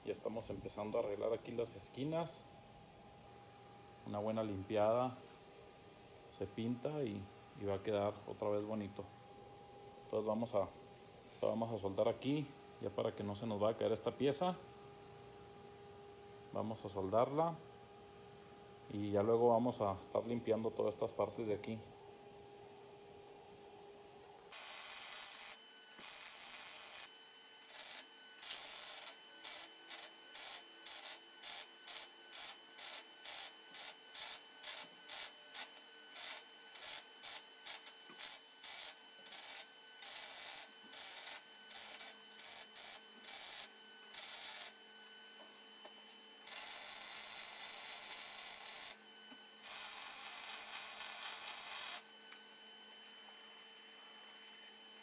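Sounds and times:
arc welding crackle: 24.5s - 45.1s, 46.4s - 49.0s, 49.6s - 52.1s.

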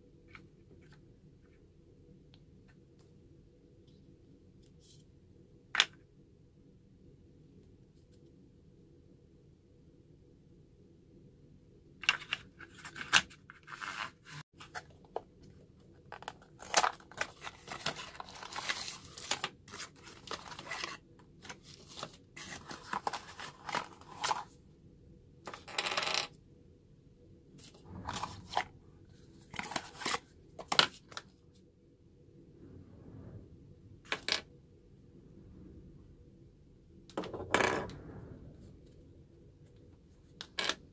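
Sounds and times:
cardboard packaging rustling: 16.1s - 24.5s, 29.4s - 31.3s.

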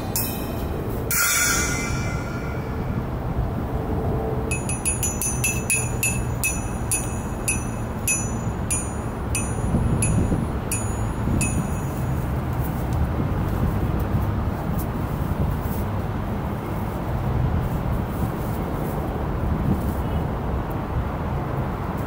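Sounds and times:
small metal bell struck: 0.0s - 3.4s, 4.5s - 12.2s
low background rumble: 0.0s - 13.9s.

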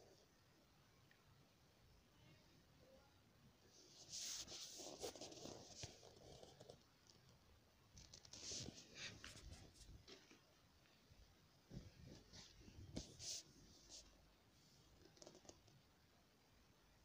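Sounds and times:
faint scratching and rustling: 3.6s - 11.0s, 11.6s - 15.9s.

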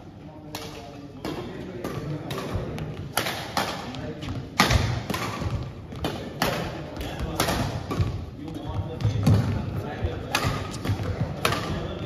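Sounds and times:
rackets hitting shuttlecock: 0.5s - 12.0s
footfalls on court floor: 6.8s - 11.8s.

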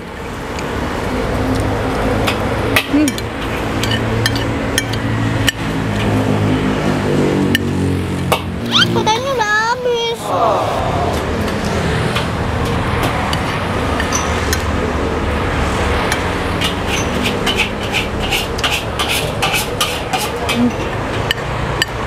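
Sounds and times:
street stall background rumble: 0.0s - 22.0s
metal utensils clinking: 16.6s - 21.4s.

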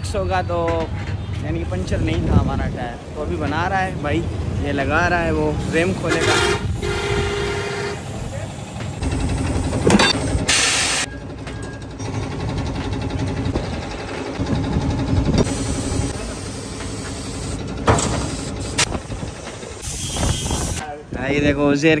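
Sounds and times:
sharp metal clanks: 9.8s - 10.3s
compressed air hisses: 15.4s - 20.8s.

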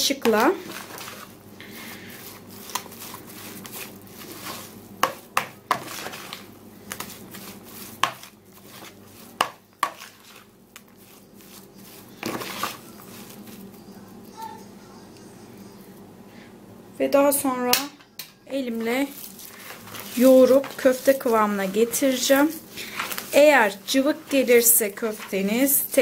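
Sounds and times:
spoon scraping bowl: 2.1s - 14.0s, 18.7s - 26.0s.

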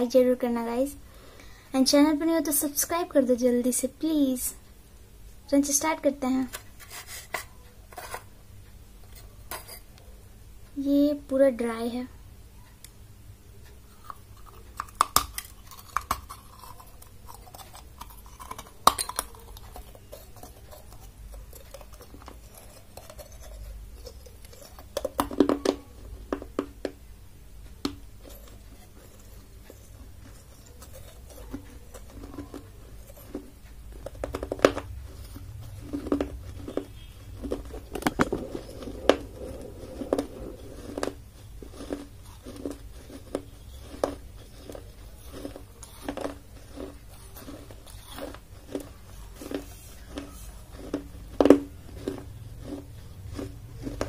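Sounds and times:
chewing: 13.6s - 26.6s, 28.2s - 54.0s
clay crunching between teeth: 13.6s - 27.0s, 27.7s - 54.0s.

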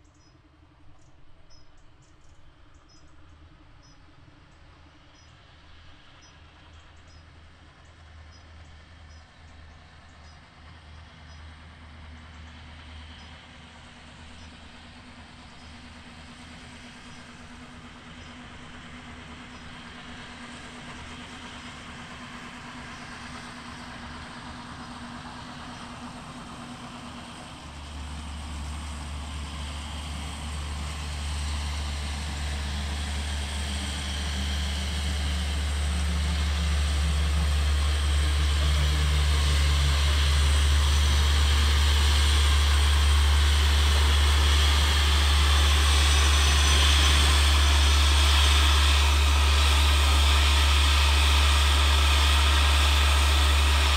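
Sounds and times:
steam locomotive rumbling: 0.0s - 53.9s
steam hissing: 15.7s - 53.9s.

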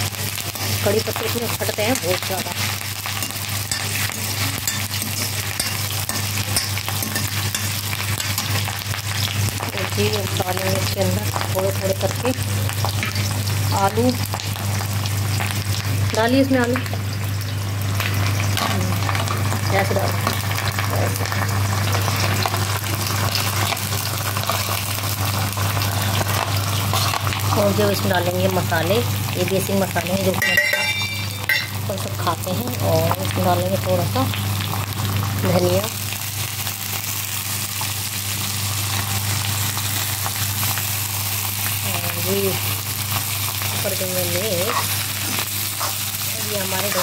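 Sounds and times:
onion frying in hot oil: 0.0s - 47.0s
spoon scraping a pan: 2.6s - 8.7s, 44.6s - 47.0s.

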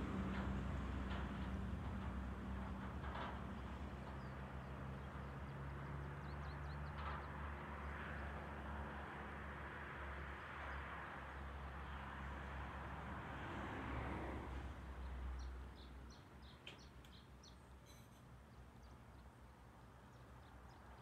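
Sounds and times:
distant engine hum: 0.0s - 21.0s
faint bird chirps: 16.4s - 19.0s.

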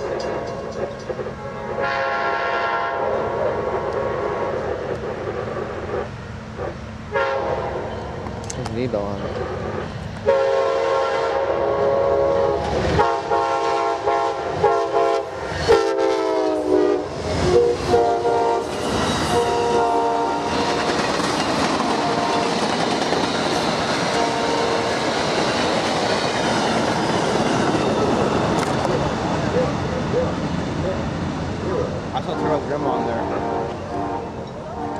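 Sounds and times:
train cars rumbling on rails: 0.0s - 34.9s
train horn blasts: 1.4s - 4.5s, 6.6s - 7.9s, 10.2s - 21.0s, 21.8s - 22.7s, 24.1s - 25.0s, 32.4s - 34.9s.

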